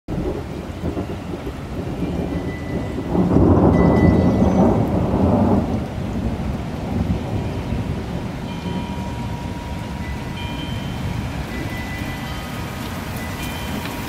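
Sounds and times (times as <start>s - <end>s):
steady rain: 0.1s - 14.0s
thunder rumble: 0.1s - 14.0s.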